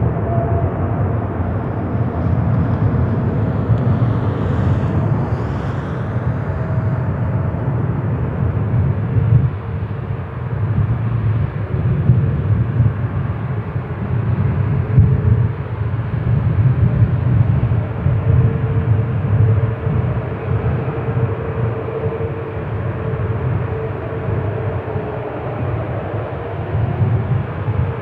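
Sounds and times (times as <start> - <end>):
faint engine tones: 0.0 - 9.9
jet engines rumbling: 0.0 - 28.0.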